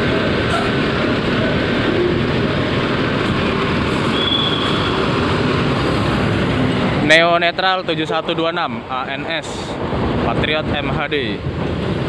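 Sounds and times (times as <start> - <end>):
bus engine and rolling noise: 0.0 - 12.0
brief high squeal: 4.1 - 5.1.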